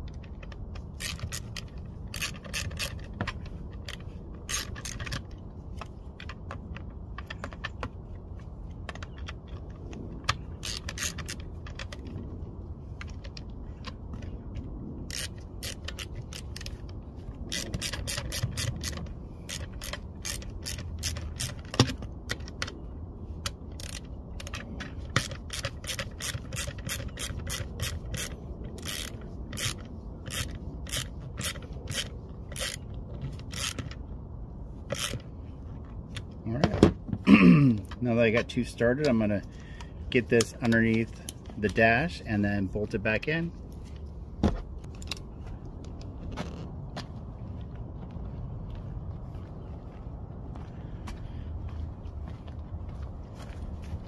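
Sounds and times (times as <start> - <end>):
ratcheting wrench clicking: 0.0 - 12.3, 15.0 - 22.8, 23.4 - 34.0, 34.8 - 35.3.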